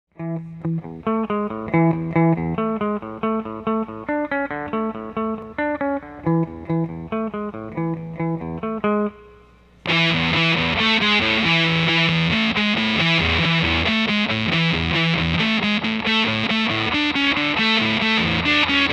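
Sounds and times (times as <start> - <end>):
electric guitar riff: 0.1 - 18.9.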